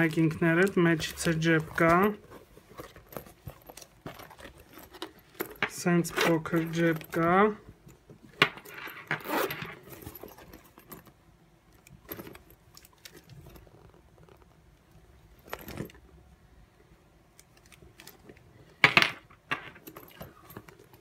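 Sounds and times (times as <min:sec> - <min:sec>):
backpack rustling: 0:00.0 - 0:07.4, 0:08.6 - 0:11.1
metal zipper pulls: 0:08.6 - 0:11.0.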